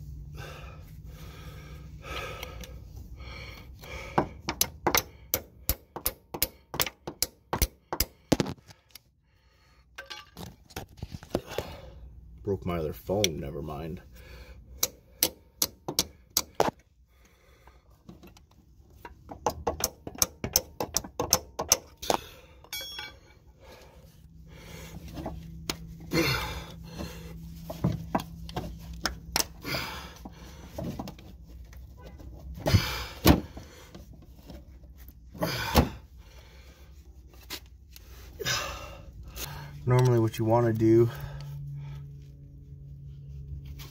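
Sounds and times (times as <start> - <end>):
hammer striking metal pry bar: 4.5 - 8.4, 14.8 - 16.7, 19.4 - 22.1, 22.7 - 23.2.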